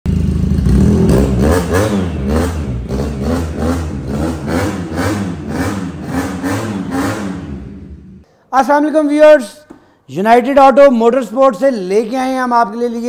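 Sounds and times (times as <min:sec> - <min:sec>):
motorcycle engine revving: 0:00.1 - 0:08.2.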